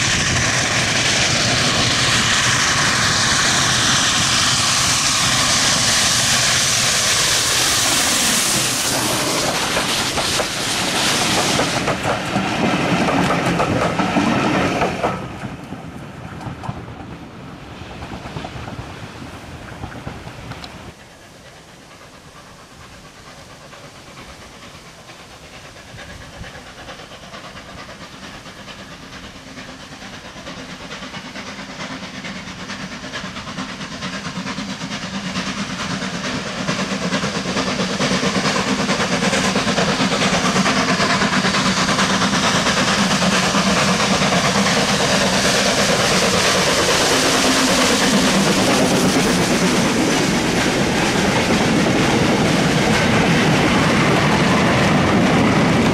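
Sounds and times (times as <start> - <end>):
steam train hiss and running: 0.0 - 55.9.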